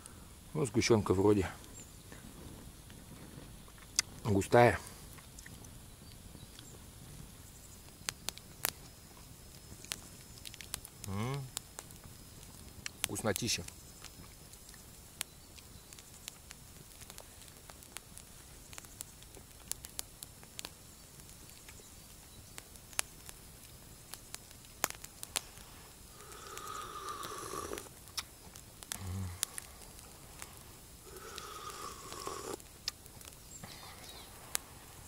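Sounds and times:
campfire crackles: 0.0s - 35.0s
man slurping hot tea: 26.3s - 27.9s, 31.1s - 32.6s.

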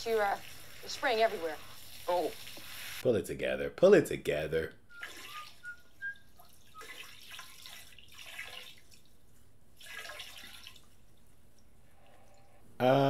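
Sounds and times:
water dripping: 0.0s - 2.8s, 4.9s - 12.6s
soft splashing hiss: 0.0s - 3.1s.

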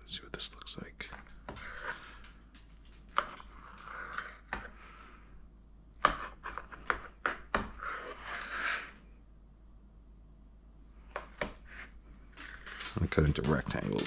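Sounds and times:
knife cutting through crusty cake: 1.1s - 4.8s, 6.0s - 9.0s.

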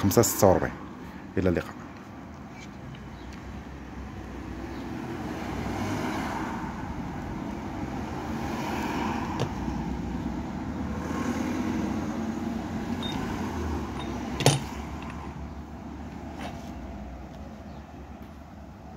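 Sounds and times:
passing cars: 3.6s - 18.9s.

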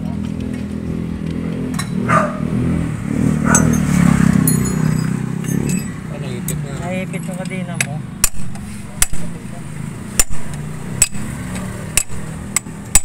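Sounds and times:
tool clinking on metal sprocket: 3.5s - 6.6s.

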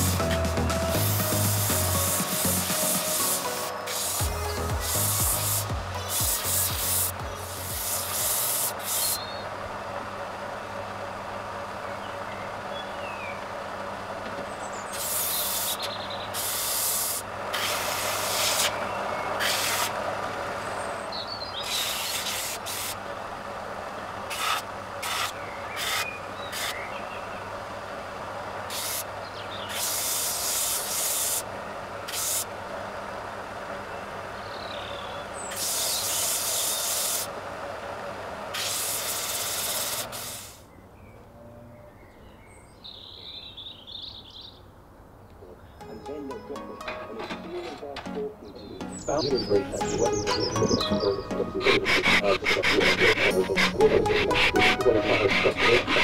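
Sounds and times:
wood sanding: 0.0s - 9.2s, 16.4s - 18.8s, 19.4s - 20.0s, 21.7s - 23.0s, 29.7s - 31.4s, 51.6s - 56.0s
belt sander motor hum: 0.0s - 12.7s.

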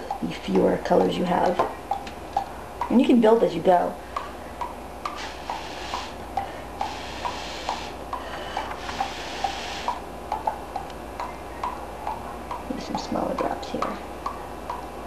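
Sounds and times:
breath blown through a straw: 5.1s - 10.0s.

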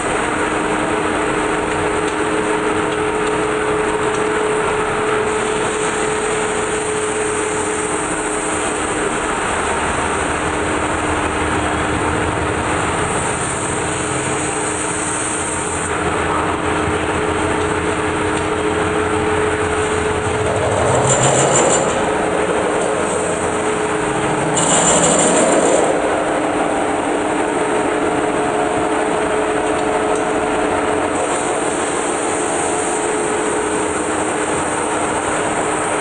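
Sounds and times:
metal lathe droning: 12.7s - 32.9s
low rumble: 18.8s - 27.7s.

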